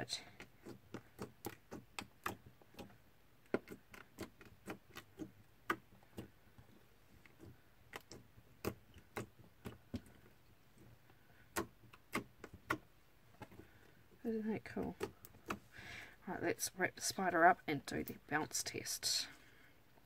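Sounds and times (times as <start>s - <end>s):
slime clicking and popping: 0.6s - 2.9s, 3.5s - 6.3s, 7.3s - 10.1s, 11.5s - 12.9s.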